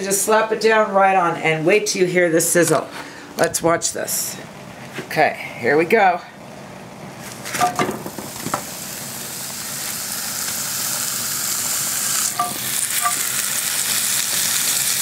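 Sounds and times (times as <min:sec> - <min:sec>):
meat knocking on grill pan: 0:07.6 - 0:08.7, 0:12.3 - 0:13.6
steak sizzling: 0:07.7 - 0:15.0.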